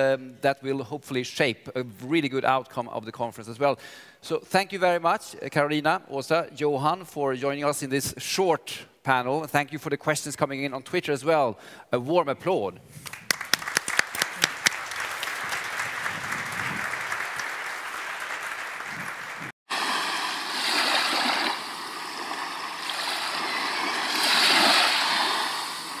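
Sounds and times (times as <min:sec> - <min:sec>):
audience applauding: 0:13.0 - 0:19.6.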